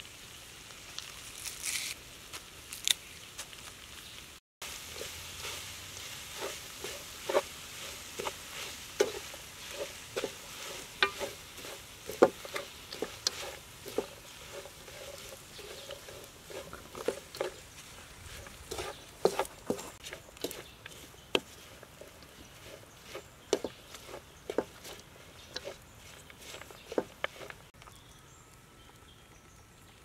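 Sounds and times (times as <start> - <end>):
food sizzling: 0.0 - 27.8
spatula scraping metal wok: 4.7 - 27.8.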